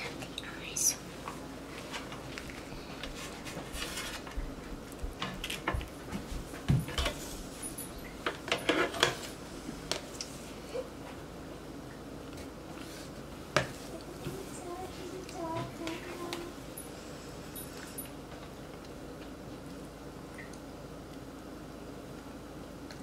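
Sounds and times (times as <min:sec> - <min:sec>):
kitchen utensils clattering: 0:06.7 - 0:09.3.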